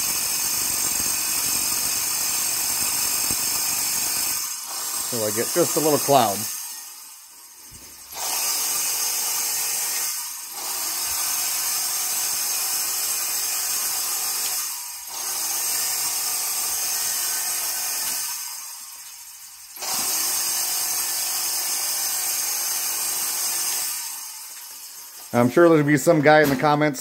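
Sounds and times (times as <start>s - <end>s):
powder-coating gun hissing: 4.4s - 6.6s.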